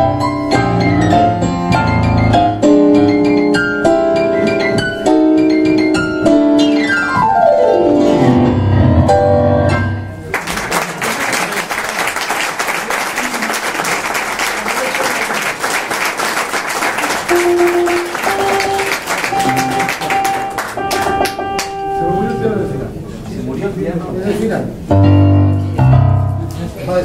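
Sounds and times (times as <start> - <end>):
tango piano duet: 0.0 - 10.3, 16.9 - 27.0
audience applause: 10.2 - 21.8.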